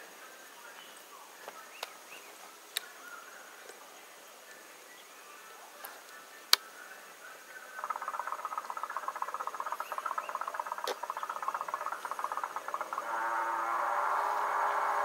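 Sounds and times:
small animal rapid trill: 12.2 - 15.0.

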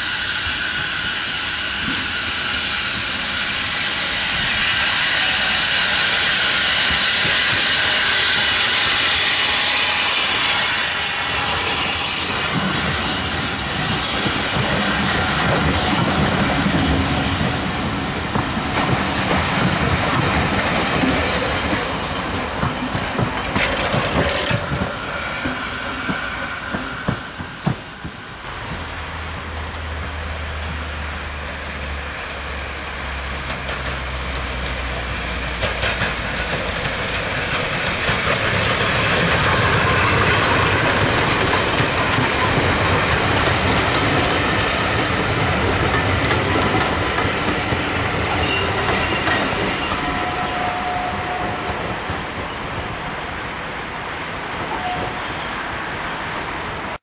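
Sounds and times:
steam locomotive passing: 0.0 - 57.0
coaches clicking over rail joints: 11.6 - 31.9, 33.0 - 57.0.

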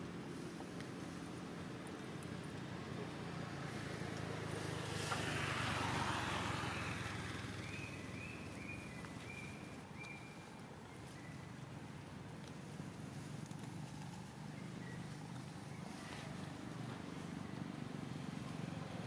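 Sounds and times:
vehicle passing: 3.2 - 9.8.

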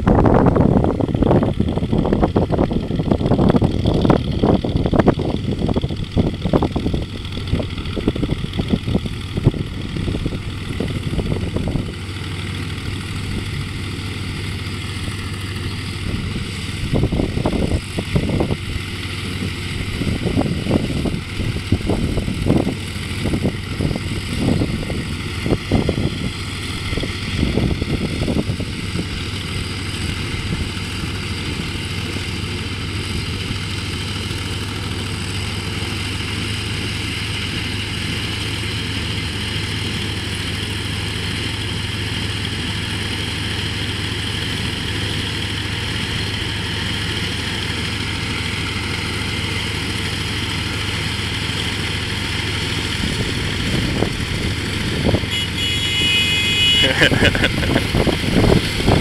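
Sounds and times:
wind buffeting microphone: 0.0 - 36.6, 51.8 - 55.3, 57.1 - 59.0
distant harvester engines running: 0.0 - 59.0
tractor engine running: 0.0 - 59.0.

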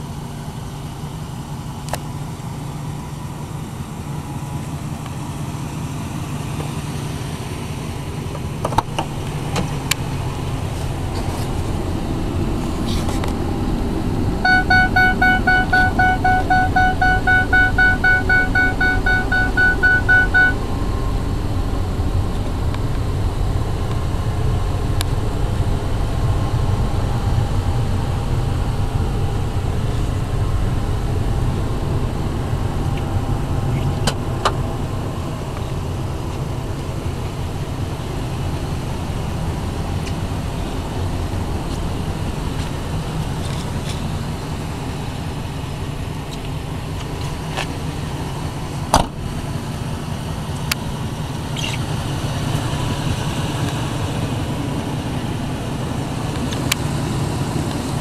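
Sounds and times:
truck engine idling: 0.0 - 58.0
dashboard warning chime: 14.4 - 20.6.

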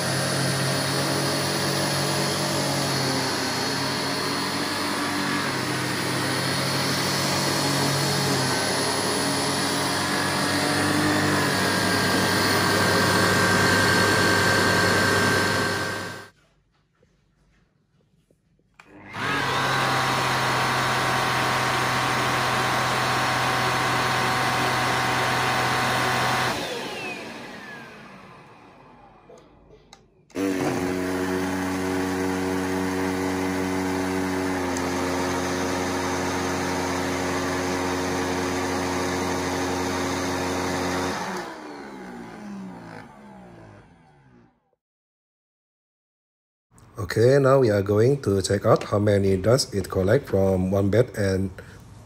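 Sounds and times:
vacuum cleaner high whine: 0.0 - 16.3, 18.8 - 29.5, 30.3 - 44.8
vacuum cleaner low hum: 0.0 - 16.4, 18.8 - 44.8.

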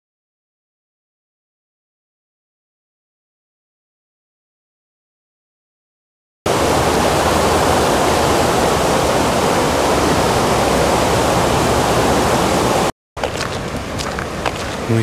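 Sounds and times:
river rushing: 6.5 - 15.0.

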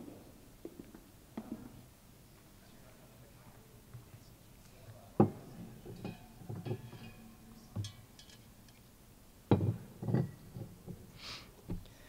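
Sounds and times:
small clinks and rattles: 5.2 - 8.9
bottles knocking on wood: 9.5 - 11.0.

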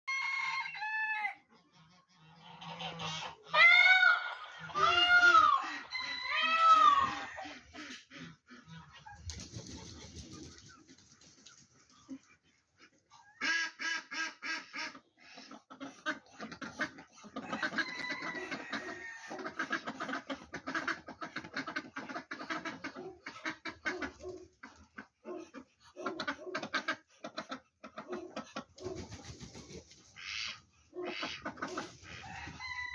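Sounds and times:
poultry clucking: 0.1 - 32.9
peafowl calling: 2.5 - 8.0.

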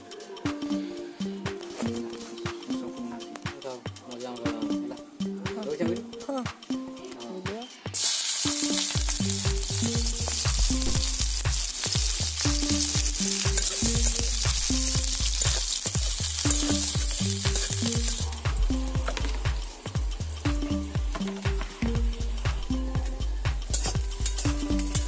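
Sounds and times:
background music with bass: 0.0 - 25.0
onions sizzling in hot oil: 7.9 - 25.0
metal spatula stirring: 8.0 - 18.4.

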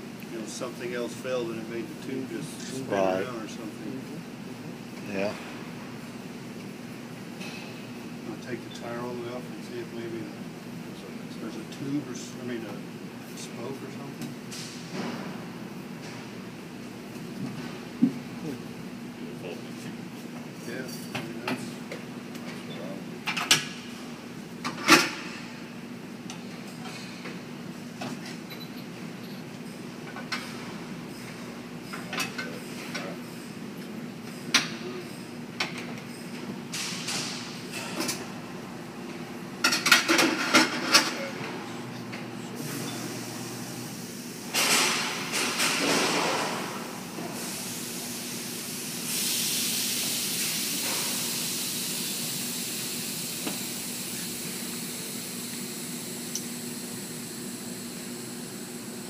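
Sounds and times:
steady hiss: 47.3 - 58.8.

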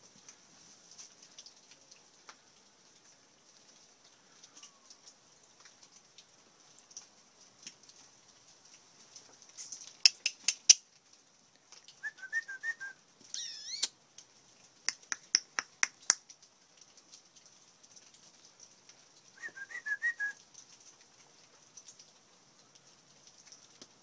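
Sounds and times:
person whistling: 12.1 - 13.9, 19.4 - 20.4
sharp high clicks: 13.4 - 13.9, 14.9 - 16.2.

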